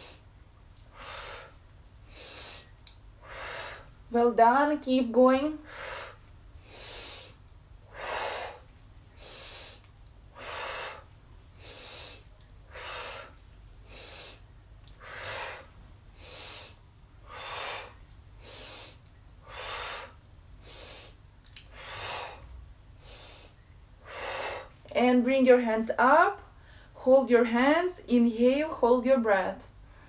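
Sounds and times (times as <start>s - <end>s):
woman blowing forceful exhale: 0.0s - 0.2s, 0.9s - 4.0s, 5.6s - 14.4s, 15.0s - 24.8s
woman sniffing inhale: 0.0s - 0.2s, 0.9s - 3.9s, 5.6s - 14.4s, 15.0s - 24.8s.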